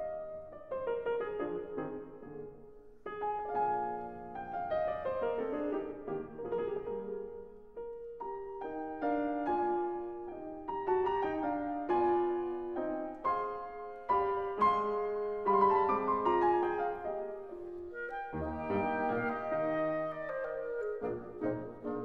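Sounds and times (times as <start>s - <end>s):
piano melody: 0.0s - 22.0s
held low instrument notes: 17.6s - 22.0s.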